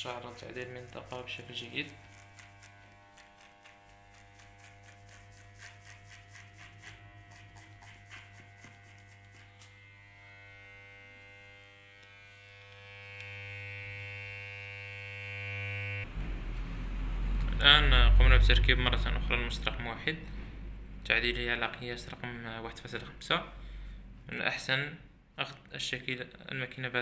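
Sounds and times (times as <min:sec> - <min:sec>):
electric hair clipper buzzing: 0:00.1 - 0:16.1
hair snipping crackle: 0:01.9 - 0:09.8.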